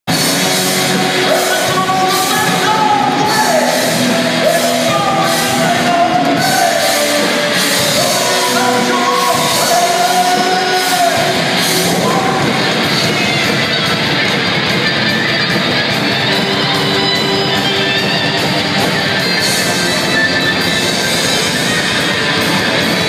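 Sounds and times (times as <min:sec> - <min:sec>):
heavy metal band playing live: 0:00.1 - 0:23.0
person singing: 0:00.9 - 0:13.3.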